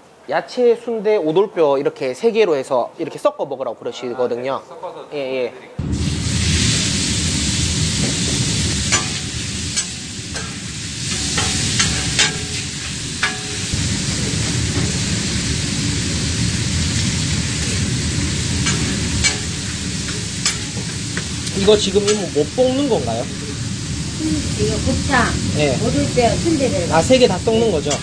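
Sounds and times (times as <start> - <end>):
pork intestines sizzling on griddle: 5.8 - 28.0
metal spatula scraping griddle: 8.8 - 13.8, 27.8 - 28.0.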